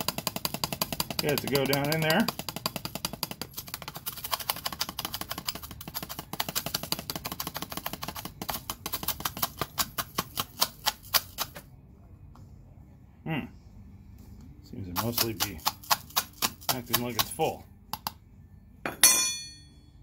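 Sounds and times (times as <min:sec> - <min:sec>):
tapping on plastic funnel: 0:00.0 - 0:11.6.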